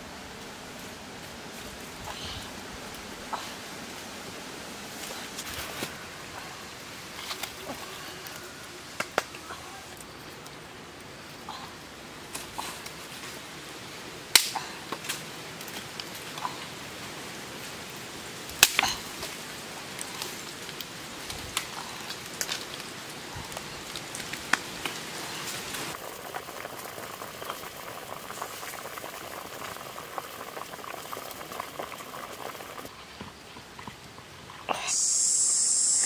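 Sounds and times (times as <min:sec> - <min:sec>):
water bubbling at a boil: 0:18.6 - 0:34.8.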